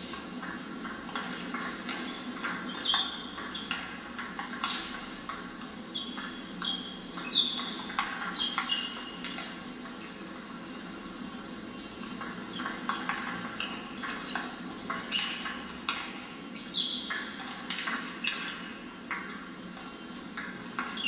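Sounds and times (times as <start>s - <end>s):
shoes squeaking on floor: 1.2s - 10.2s, 16.6s - 18.6s, 20.0s - 21.0s.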